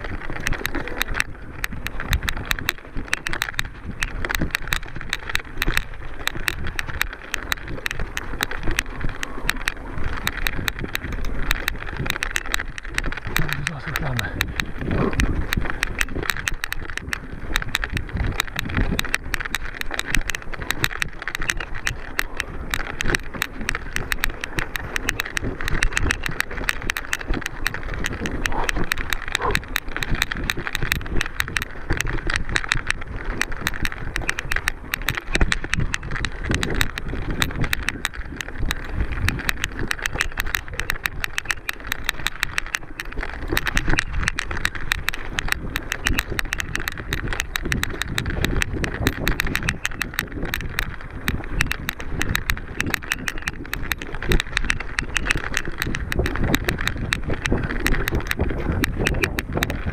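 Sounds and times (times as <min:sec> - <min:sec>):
bike rattling and clattering: 0:00.0 - 0:59.9
constant rushing noise: 0:00.0 - 0:59.9.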